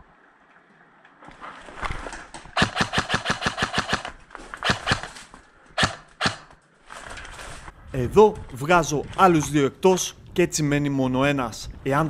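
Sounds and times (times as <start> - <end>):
airsoft gun shots: 2.6 - 5.1, 5.8 - 6.6.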